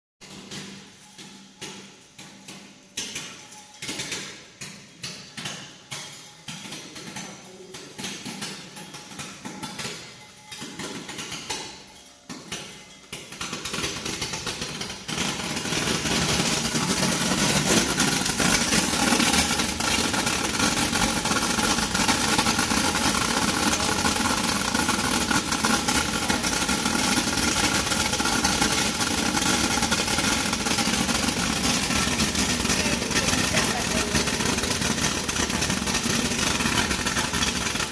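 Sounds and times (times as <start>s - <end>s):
sorting machine mechanical din: 11.7s - 37.9s
crackle of peppercorns pouring: 13.1s - 37.9s.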